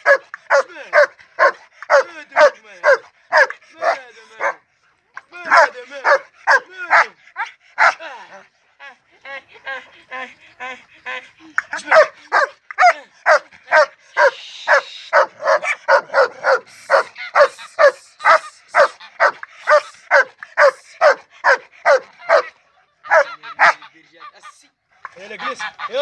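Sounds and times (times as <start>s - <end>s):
dog barking high-pitched: 0.0s - 4.6s, 5.5s - 8.0s, 11.8s - 22.5s, 23.1s - 23.8s.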